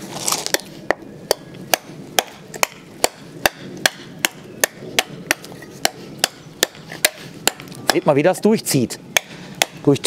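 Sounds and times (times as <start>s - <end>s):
knife chopping hard wood: 1.3s - 8.1s, 9.2s - 9.8s.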